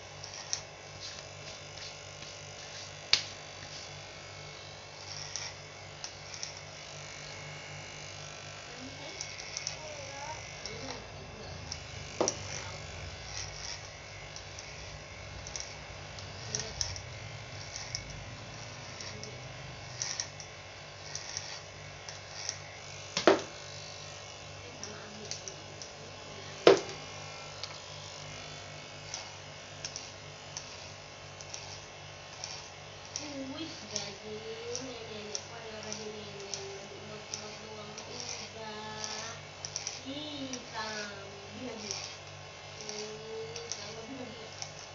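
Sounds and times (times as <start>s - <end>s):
electric hair clippers buzzing: 0.0s - 44.9s
sharp knocks: 23.2s - 23.6s, 26.7s - 27.0s.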